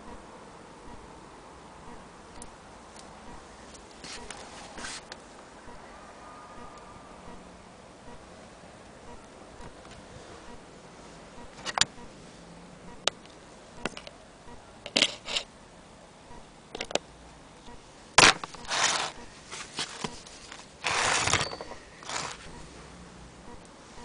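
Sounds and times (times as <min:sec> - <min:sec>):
brief scraping rubs: 0:04.0 - 0:05.1
hard parts clicking and knocking: 0:19.8 - 0:22.5.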